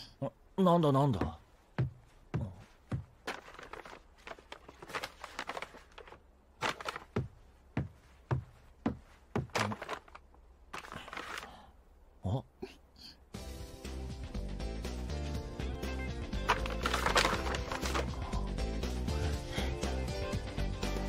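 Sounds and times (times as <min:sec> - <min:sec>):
soft footstep thuds: 0:01.2 - 0:11.0
paper bag rustling: 0:03.2 - 0:07.4, 0:09.4 - 0:11.6, 0:16.4 - 0:18.3.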